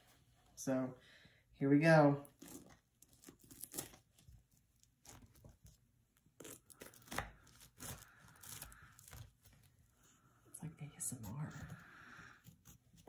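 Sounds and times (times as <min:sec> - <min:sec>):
pie crust crackling and crunching: 0:02.0 - 0:10.2.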